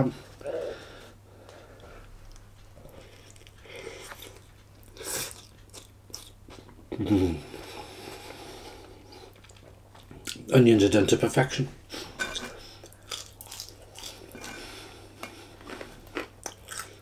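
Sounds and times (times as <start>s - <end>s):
man chewing food: 0.2s - 10.5s, 11.9s - 17.0s
man's voiced sound with full mouth: 6.9s - 7.7s.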